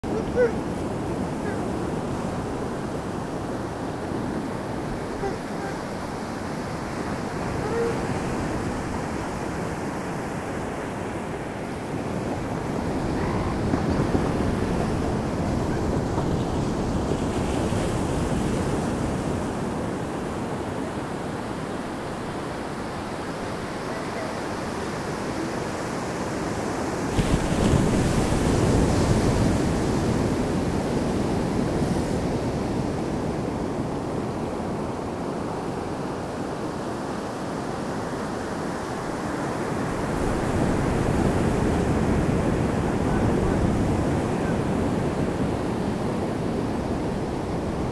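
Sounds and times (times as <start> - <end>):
surf washing on beach: 0.0 - 47.9
wind buffeting microphone: 11.8 - 25.3.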